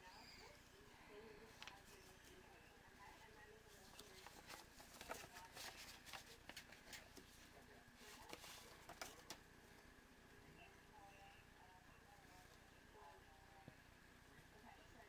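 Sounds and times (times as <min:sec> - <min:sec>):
paper envelope rustling: 0:03.7 - 0:09.4.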